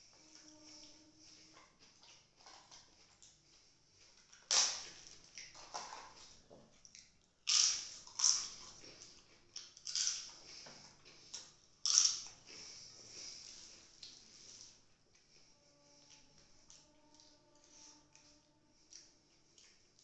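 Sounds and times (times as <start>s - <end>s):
crisp papadum crackling: 9.6s - 10.3s.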